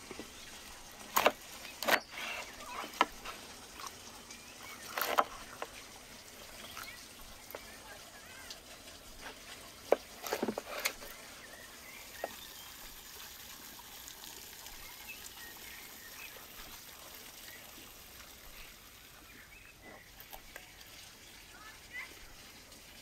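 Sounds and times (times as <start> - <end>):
birds chirping: 0.0 - 13.4, 14.6 - 22.7
knife chopping on wooden board: 4.9 - 5.3.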